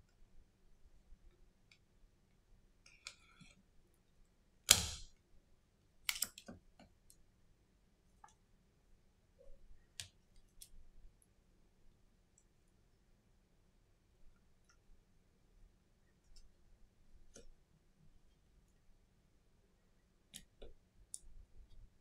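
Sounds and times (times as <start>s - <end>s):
small clicks of phone parts: 6.1s - 6.6s.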